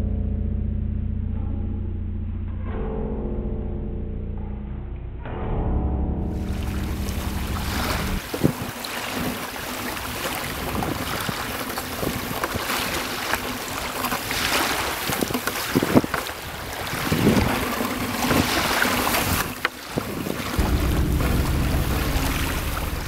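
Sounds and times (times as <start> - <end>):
water lapping around boat: 6.3 - 23.0
wind buffeting microphone: 6.3 - 23.0
fishing net knocks and splashes: 6.4 - 22.9.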